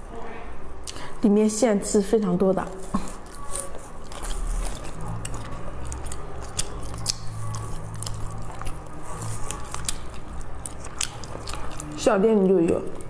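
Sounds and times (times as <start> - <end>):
low steady hum: 0.0 - 13.0
wet chewing: 2.8 - 13.0.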